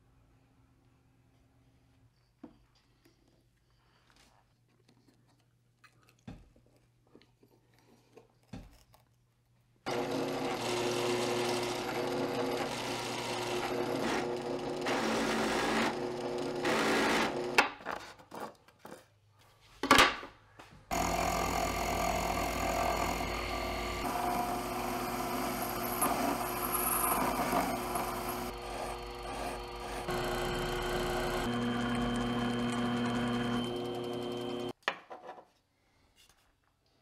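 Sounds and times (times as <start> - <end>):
drill press boring through plywood: 9.9 - 17.6, 20.9 - 34.7
lathe motor running: 9.9 - 17.6, 20.9 - 34.7.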